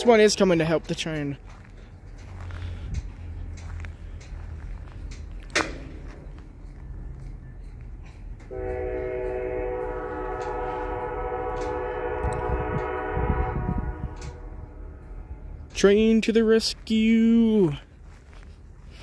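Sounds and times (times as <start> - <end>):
low rumble: 1.4 - 16.2
locomotive air horn blast: 8.4 - 15.6.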